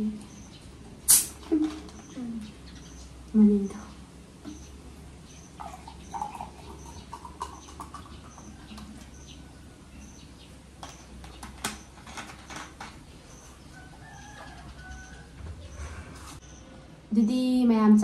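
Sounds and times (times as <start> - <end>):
bottle cap clicks: 1.1 - 1.4.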